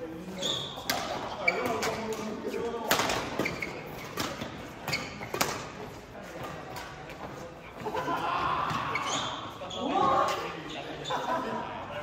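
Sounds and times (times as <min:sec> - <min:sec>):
rackets hitting shuttlecock: 0:00.8 - 0:05.8.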